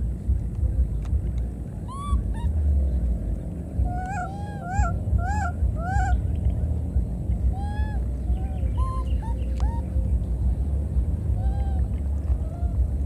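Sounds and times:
steady low rumble: 0.0s - 13.0s
infant monkey coo calls: 1.8s - 2.8s, 3.8s - 6.5s, 7.3s - 10.4s, 11.3s - 13.0s.

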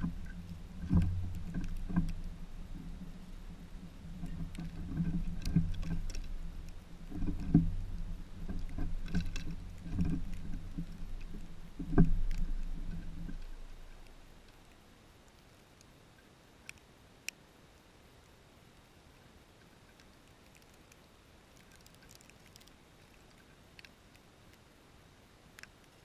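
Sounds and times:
low rumble: 0.0s - 14.4s.

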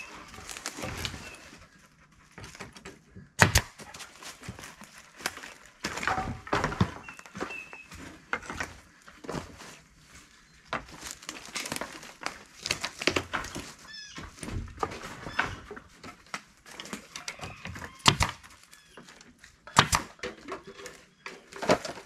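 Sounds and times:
knocks and rustling of board: 2.3s - 22.0s
nail gun shots: 3.4s - 3.7s, 18.0s - 18.4s, 19.7s - 20.2s.

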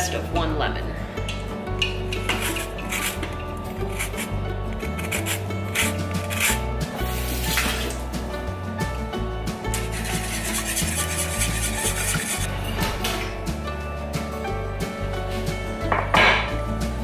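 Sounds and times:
background music: 0.0s - 17.0s
lemon rasping on metal grater: 2.2s - 6.6s, 9.8s - 12.5s
wire whisk beating in bowl: 9.7s - 12.5s.

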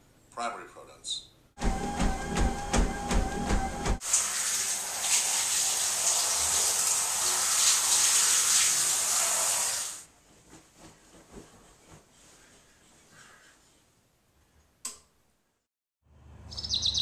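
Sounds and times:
footfalls pounding treadmill belt: 1.6s - 4.0s
treadmill motor whine: 1.6s - 4.0s
shower spraying: 3.5s - 10.1s.

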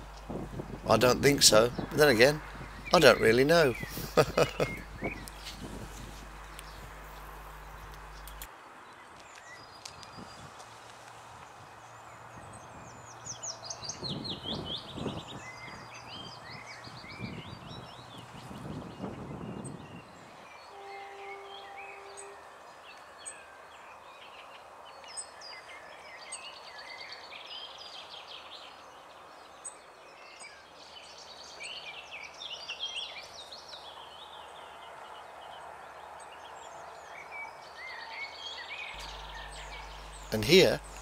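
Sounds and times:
background hiss: 0.0s - 8.5s, 38.9s - 41.0s
birds chirping and trilling: 0.0s - 10.3s, 11.8s - 41.0s
low steady tone: 39.0s - 41.0s.

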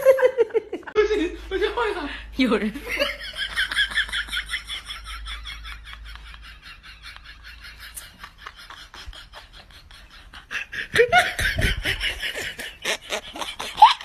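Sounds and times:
person laughing hard: 2.9s - 14.0s.

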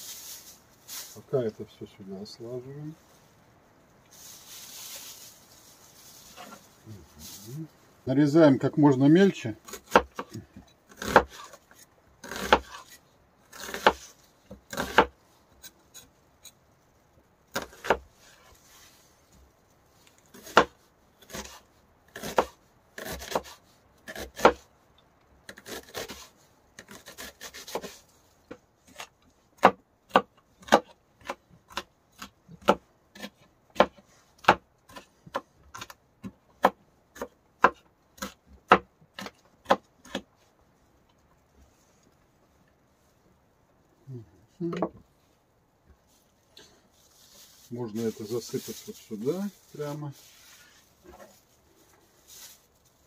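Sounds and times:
knife chopping on cutting board: 9.7s - 10.4s, 11.0s - 11.5s, 12.2s - 12.9s, 13.5s - 14.0s, 14.7s - 15.1s, 20.4s - 20.7s, 22.2s - 24.6s, 28.9s - 40.2s.

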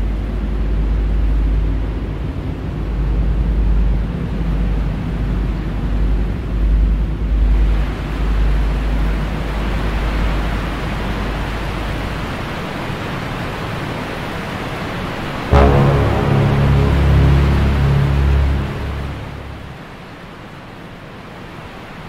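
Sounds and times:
deep rumble: 15.5s - 20.2s
steady rushing noise: 15.5s - 20.3s.

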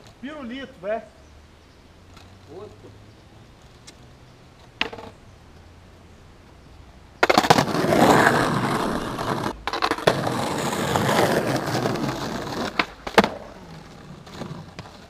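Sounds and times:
skateboard wheels rolling on concrete: 0.0s - 15.0s
skateboard tail pop and slap: 4.8s - 5.2s, 7.2s - 7.8s, 12.6s - 13.5s.

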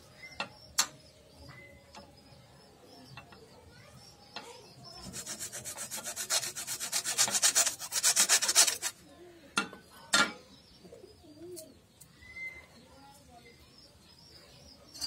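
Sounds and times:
hacksaw sawing: 5.0s - 9.0s.

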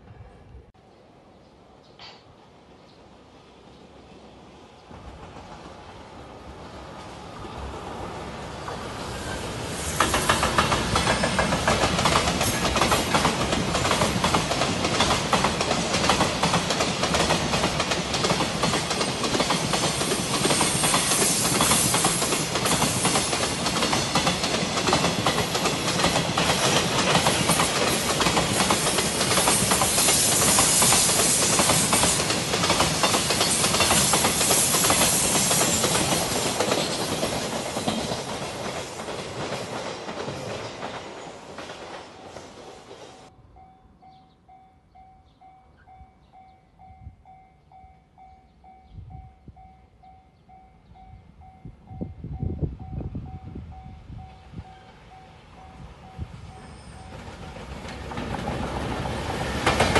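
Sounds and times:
freight train rumbling past: 2.4s - 47.9s, 50.5s - 59.9s.

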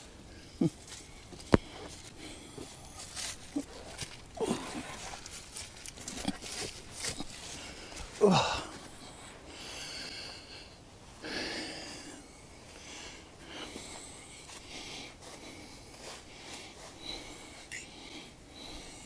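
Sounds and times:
soft breathing: 0.0s - 19.0s
footsteps shuffling through dry leaves: 2.7s - 8.3s.

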